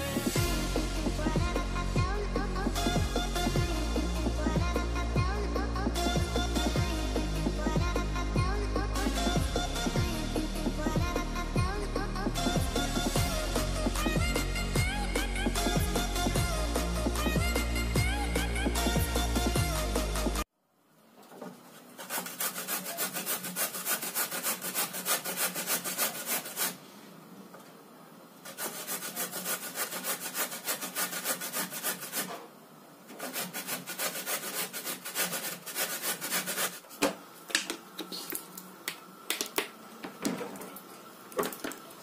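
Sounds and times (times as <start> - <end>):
carrot rasping on a grater: 21.8 - 26.8, 28.4 - 32.4, 33.1 - 36.8.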